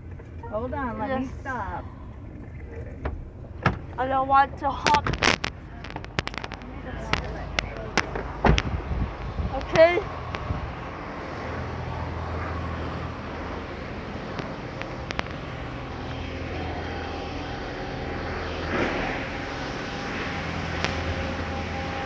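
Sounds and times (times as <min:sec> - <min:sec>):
faint whine: 0:00.0 - 0:22.0
low mechanical drone: 0:00.0 - 0:22.0.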